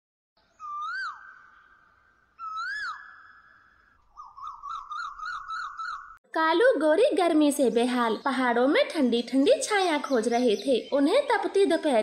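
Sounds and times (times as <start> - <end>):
bird-like whistled calls: 0.4 - 6.2.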